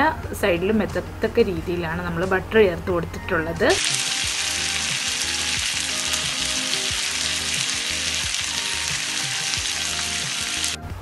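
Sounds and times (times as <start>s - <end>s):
sauce sizzling in a hot pan: 3.8s - 10.8s.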